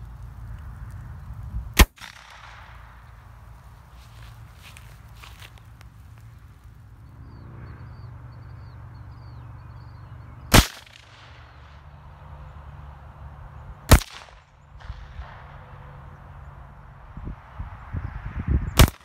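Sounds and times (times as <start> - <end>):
loud gunshots with echo: 10.5 - 11.7, 13.9 - 15.8.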